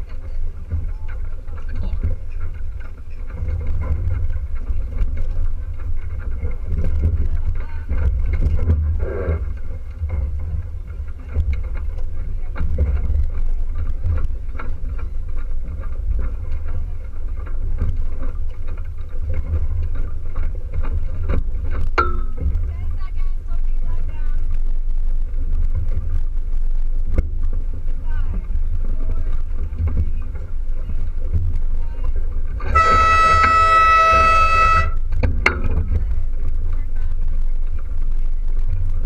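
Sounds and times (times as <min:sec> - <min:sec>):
water rushing along hull: 0:00.0 - 0:39.0
wind buffeting microphone: 0:00.0 - 0:39.0.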